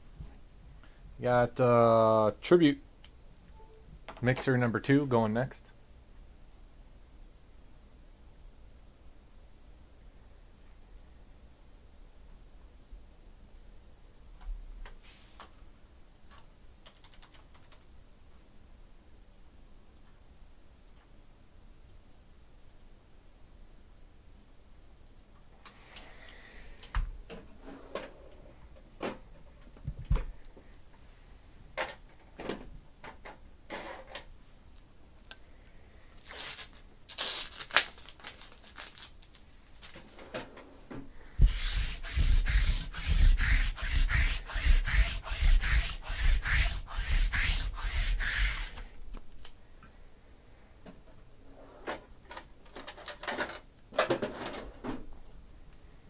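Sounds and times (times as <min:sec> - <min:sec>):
rhythmic rubbing strokes: 0:41.4 - 0:48.9.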